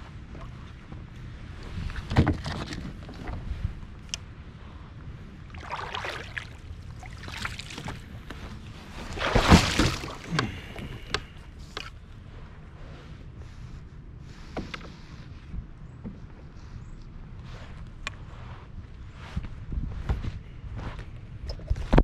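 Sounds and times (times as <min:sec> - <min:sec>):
water splashing around kayak: 0:01.6 - 0:03.8, 0:05.4 - 0:11.9.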